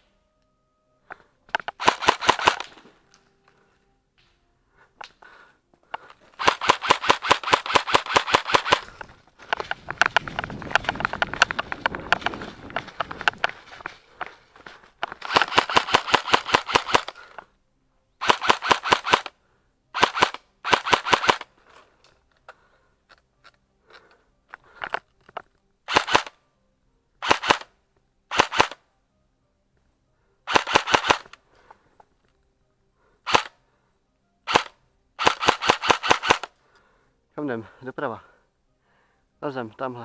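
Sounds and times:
airsoft gun firing bursts: 1.6 - 2.8, 6.4 - 14.0, 15.1 - 17.3, 18.2 - 19.3, 20.0 - 21.5, 25.9 - 26.3, 27.2 - 27.7, 28.3 - 28.8, 30.5 - 31.4, 33.3 - 33.5, 34.5 - 36.5.

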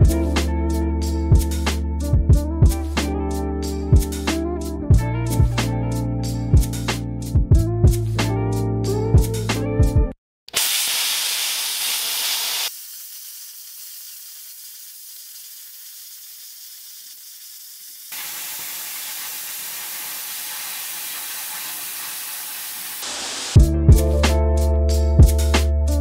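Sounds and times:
plasma cutter hissing: 10.5 - 23.6.

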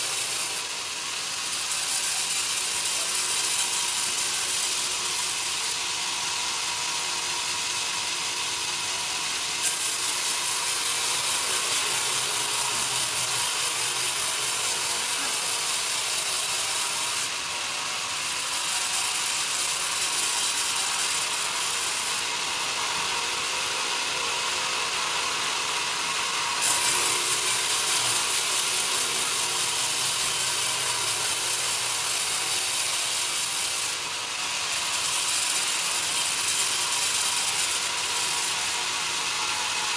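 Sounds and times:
band saw whining: 0.0 - 39.9
saw blade cutting log: 0.0 - 39.9.

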